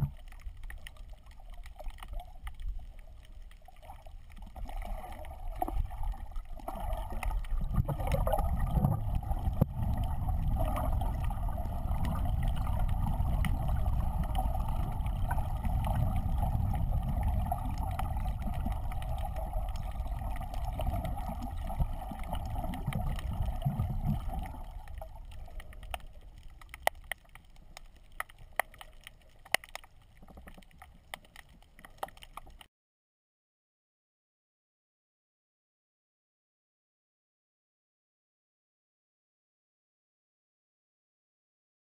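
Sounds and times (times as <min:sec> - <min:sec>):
underwater rushing water: 0:00.0 - 0:32.7.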